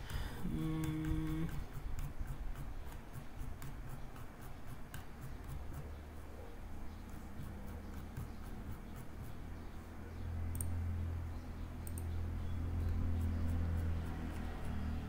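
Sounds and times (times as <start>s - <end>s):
low steady hum: 0.0s - 15.0s
computer mouse clicks: 10.5s - 10.8s, 11.8s - 12.2s.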